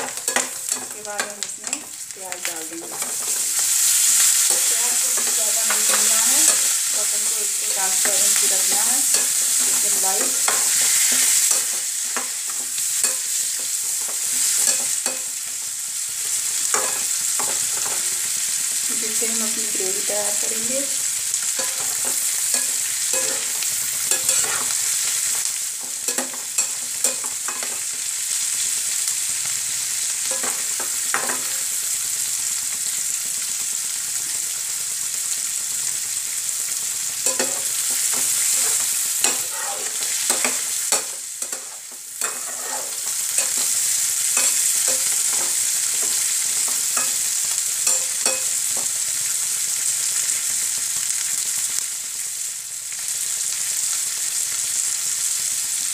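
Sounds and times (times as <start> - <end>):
onions sizzling in a pan: 0.0 - 55.9
metal spatula scraping a pan: 2.7 - 15.3, 16.6 - 18.4, 21.4 - 28.0, 37.2 - 48.6.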